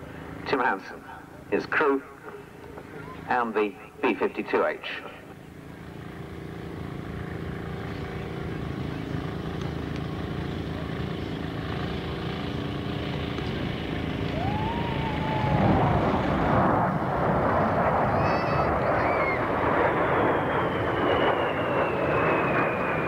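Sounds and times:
droning hum: 0:00.0 - 0:23.0
jet engine roar: 0:00.0 - 0:23.0
rising and falling tone: 0:14.3 - 0:19.5.

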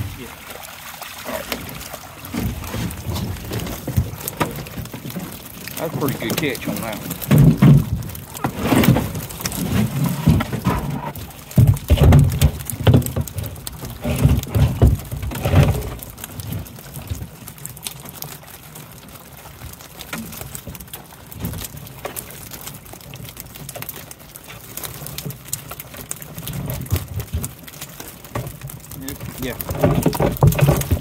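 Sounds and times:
fish flopping against wire: 0:01.4 - 0:18.4
heavy knocks and thumps: 0:06.0 - 0:13.4.

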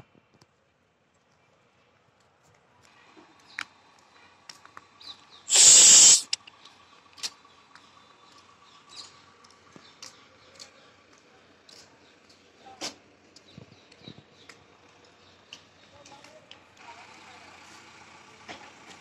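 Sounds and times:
sharp hiss: 0:05.5 - 0:06.4
faint scattered clicks: 0:05.7 - 0:12.4.

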